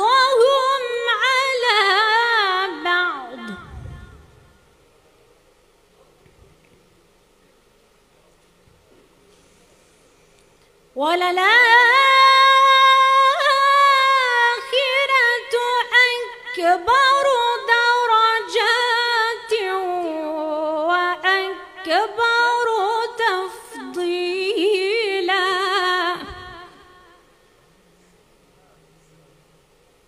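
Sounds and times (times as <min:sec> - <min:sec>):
woman reciting melodically: 0:00.0 - 0:04.2, 0:11.0 - 0:27.4.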